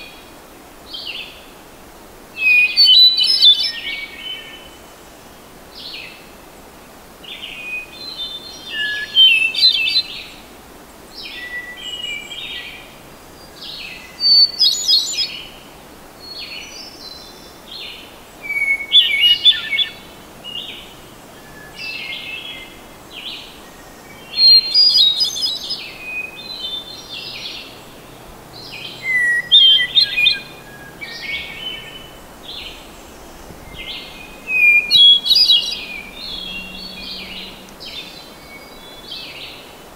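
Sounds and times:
thrush singing: 18.5 - 39.9.

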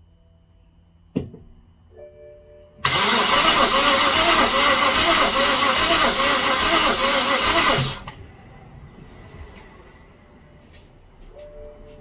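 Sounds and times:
starter motor cranking engine: 2.8 - 8.2.

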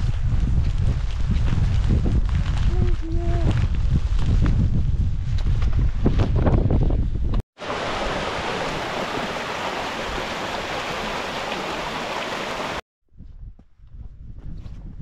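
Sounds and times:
wind buffeting microphone: 0.0 - 11.9, 12.6 - 15.0
water rushing: 7.6 - 12.8.

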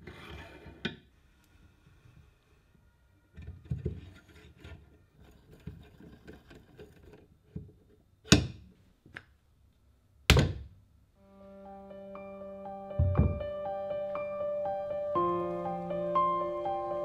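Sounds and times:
metal stand knocking on wood: 13.0 - 13.4.

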